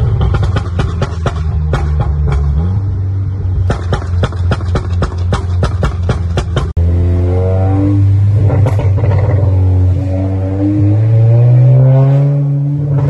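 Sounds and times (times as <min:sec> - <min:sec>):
car engine accelerating: 0:05.4 - 0:13.0.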